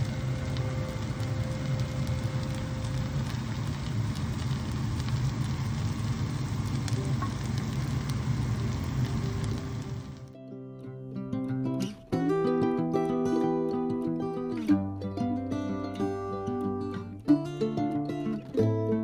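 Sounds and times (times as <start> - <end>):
fish frying in hot oil: 0.0 - 10.3
low steady hum: 0.0 - 10.3.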